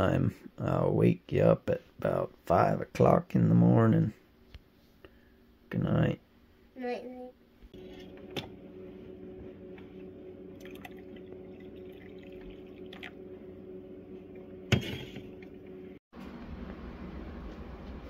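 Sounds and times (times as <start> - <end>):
low hum: 7.7 - 18.0
coffee pouring into mug: 10.5 - 13.2.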